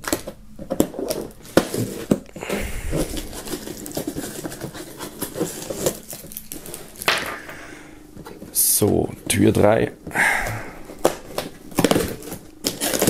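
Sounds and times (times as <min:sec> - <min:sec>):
cardboard rustling and scraping: 0:00.1 - 0:07.1, 0:10.9 - 0:13.0
crinkling sweet wrappers: 0:00.9 - 0:07.7, 0:10.4 - 0:13.0.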